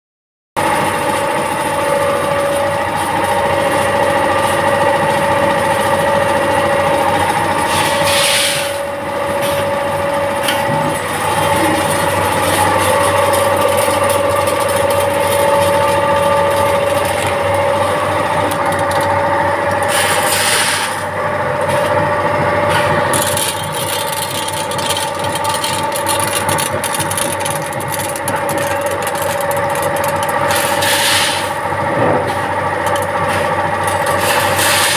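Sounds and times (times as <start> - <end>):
packing machine hum: 0.6 - 34.9
fine rapid clicking: 23.1 - 30.9.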